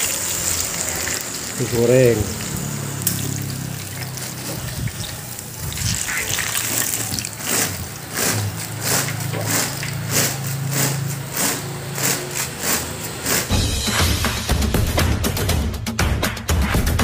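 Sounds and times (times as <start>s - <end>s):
oil splashing: 0.0s - 13.5s
oil sizzling and bubbling: 0.0s - 14.5s.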